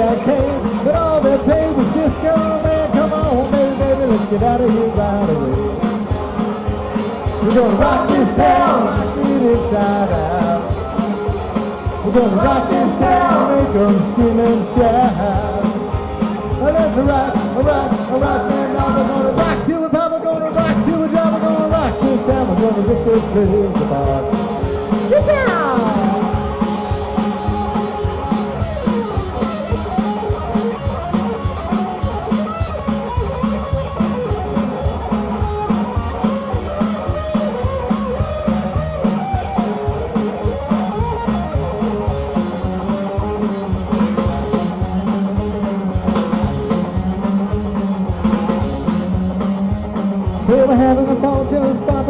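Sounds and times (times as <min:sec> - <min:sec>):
drum kit beat: 0:00.0 - 0:52.0
electric bass: 0:00.0 - 0:52.0
electric guitar lead: 0:00.0 - 0:52.0.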